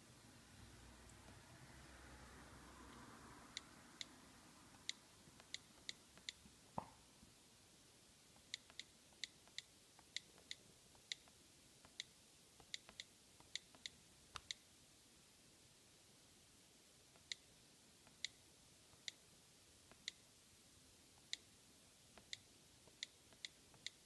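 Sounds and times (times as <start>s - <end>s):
on-screen keyboard clicks: 8.4s - 14.6s, 22.2s - 24.0s.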